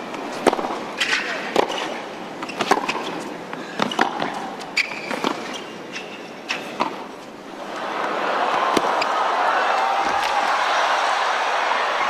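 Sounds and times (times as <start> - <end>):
racket striking ball: 0.4 - 3.1, 6.6 - 7.0, 8.7 - 9.1
shoe squeaks on court: 4.7 - 6.8.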